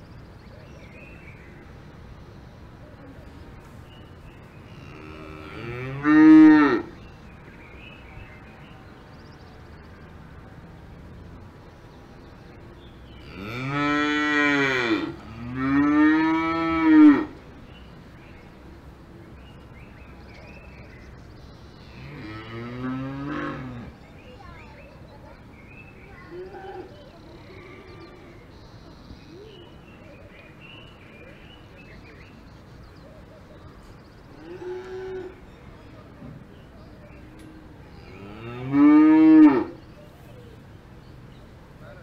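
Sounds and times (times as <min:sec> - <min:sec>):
cows mooing: 0:04.8 - 0:06.9, 0:13.2 - 0:17.3, 0:22.0 - 0:23.9, 0:38.0 - 0:39.8.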